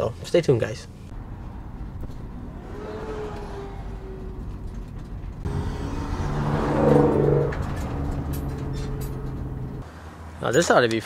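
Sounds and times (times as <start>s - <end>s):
road and engine noise: 0.0s - 11.0s
vehicle passing close: 1.2s - 9.9s.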